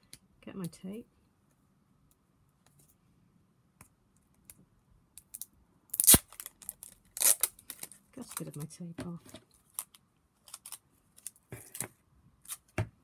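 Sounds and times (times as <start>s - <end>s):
tape ripping off roll: 5.9s - 6.6s, 7.2s - 7.9s.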